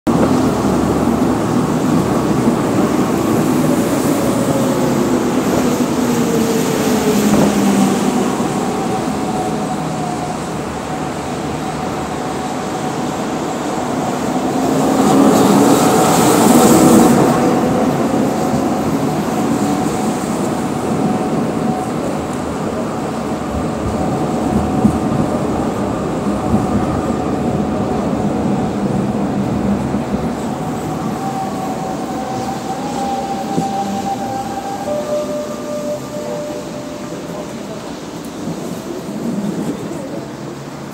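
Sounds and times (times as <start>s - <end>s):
tram rolling on rails: 0.1s - 40.9s
whining tones gliding in pitch: 29.8s - 39.6s.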